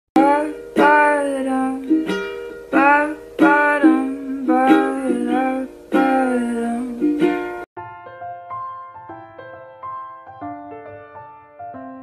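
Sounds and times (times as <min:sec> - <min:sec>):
plucked string instrument music: 0:00.2 - 0:07.7.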